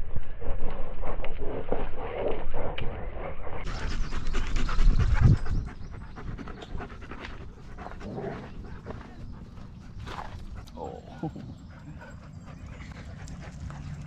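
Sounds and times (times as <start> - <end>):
dog panting: 3.6 - 14.0.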